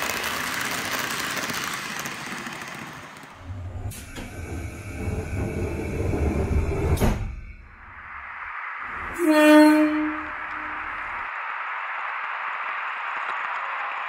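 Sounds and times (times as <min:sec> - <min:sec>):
model train wheels and motor hiss: 0:00.0 - 0:06.6
low rattling rumble: 0:03.4 - 0:09.2, 0:09.8 - 0:14.0.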